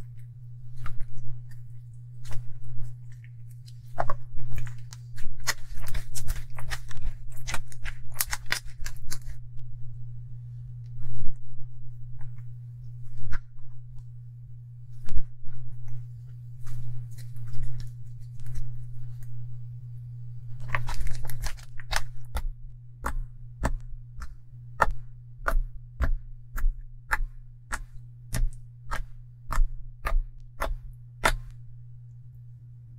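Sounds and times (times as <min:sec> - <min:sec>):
steady low hum: 0:00.0 - 0:32.9
fingers poking slime popping: 0:21.9 - 0:31.6.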